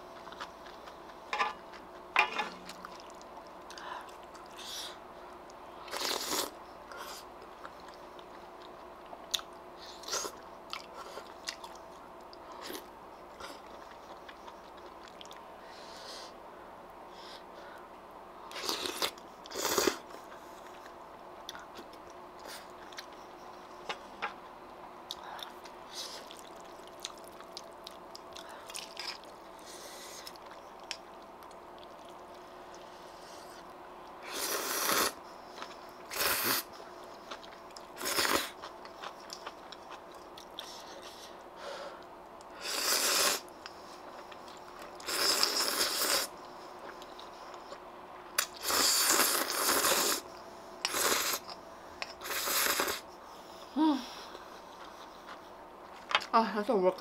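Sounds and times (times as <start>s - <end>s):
slurping noodles: 34.2s - 35.2s, 36.1s - 36.7s, 42.6s - 43.4s, 45.0s - 46.3s, 48.6s - 50.2s, 50.9s - 51.5s, 52.2s - 53.0s.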